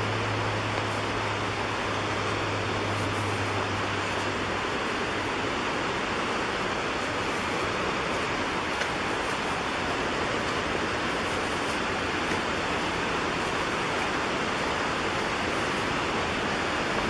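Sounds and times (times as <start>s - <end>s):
creek water flowing: 0.0s - 17.0s.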